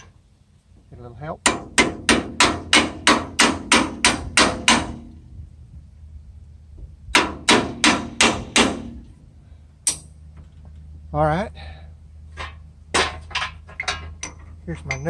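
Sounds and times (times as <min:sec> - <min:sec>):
metal hammering on metal: 0:01.4 - 0:05.2, 0:07.1 - 0:09.0.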